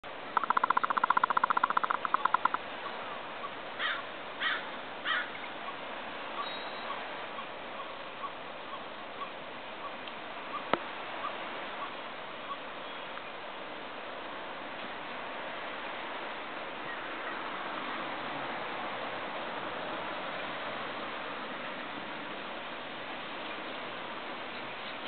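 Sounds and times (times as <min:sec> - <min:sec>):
gulls calling: 0:00.3 - 0:05.8.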